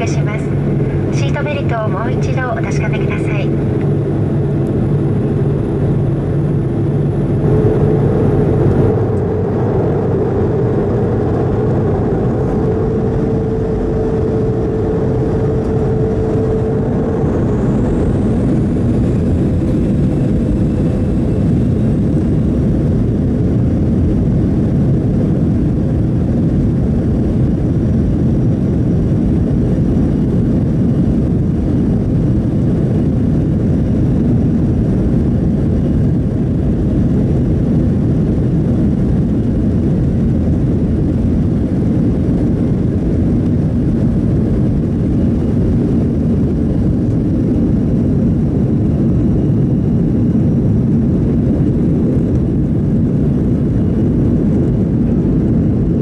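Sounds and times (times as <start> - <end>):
jet engines rumbling: 0.0 - 56.0.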